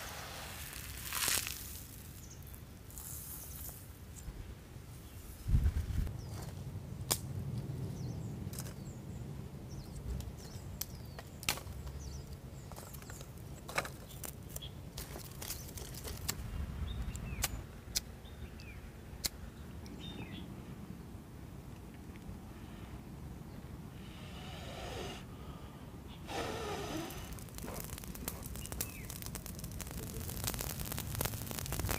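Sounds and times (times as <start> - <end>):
small birds chirping: 7.8 - 20.6, 23.4 - 31.9.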